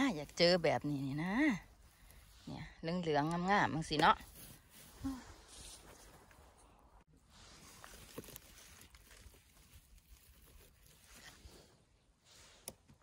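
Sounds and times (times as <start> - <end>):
dry leaves rustling and clicking: 7.7 - 11.6.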